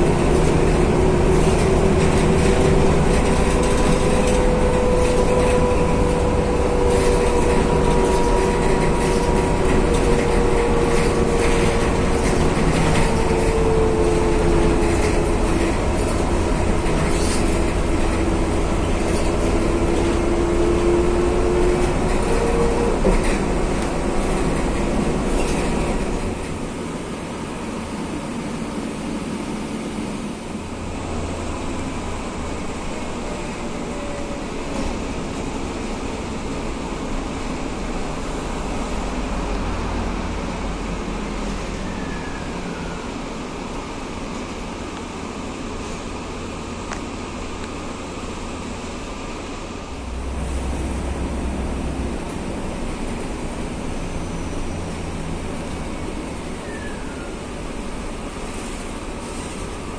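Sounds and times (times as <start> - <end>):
bus drivetrain rumble: 0.0 - 59.9
falling whine: 49.5 - 55.7.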